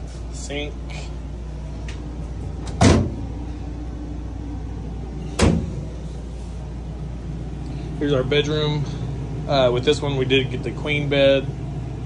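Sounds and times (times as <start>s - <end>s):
steady low hum: 0.0s - 12.0s
door shutting knocks: 2.6s - 3.2s, 5.4s - 5.8s.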